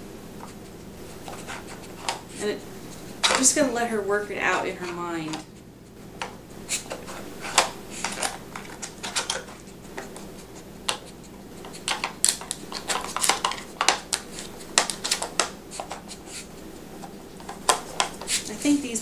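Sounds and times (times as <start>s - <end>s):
plastic puzzle toy clattering: 6.9s - 9.6s, 11.6s - 16.1s.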